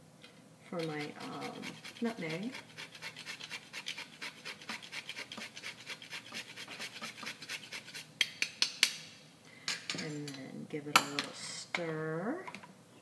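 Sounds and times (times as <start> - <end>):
nutmeg grating rasps: 0.8 - 8.1.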